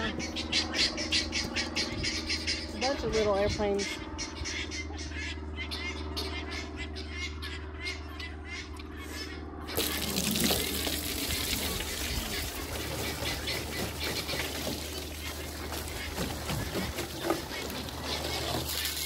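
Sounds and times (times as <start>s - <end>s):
hose water running into trough: 9.8s - 19.0s.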